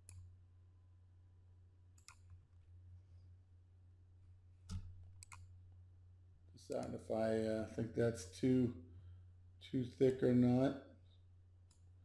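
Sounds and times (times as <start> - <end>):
computer mouse clicks: 0.0 - 0.3, 2.0 - 2.4, 4.7 - 5.5, 6.7 - 7.0, 11.6 - 11.9
faint low hum: 0.0 - 12.0.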